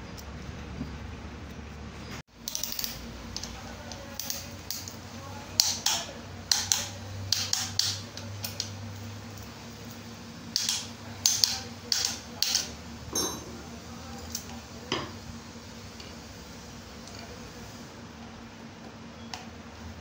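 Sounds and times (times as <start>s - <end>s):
metal taps and clinks: 13.1s - 13.6s.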